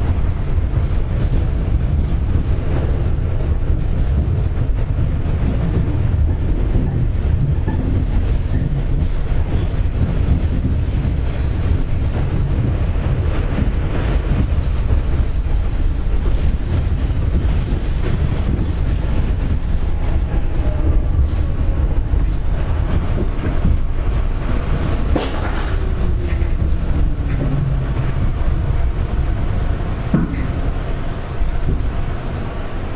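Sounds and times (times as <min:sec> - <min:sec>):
subway train rumble: 0:00.0 - 0:32.9
high wheel squeal: 0:05.4 - 0:07.1, 0:07.8 - 0:12.2.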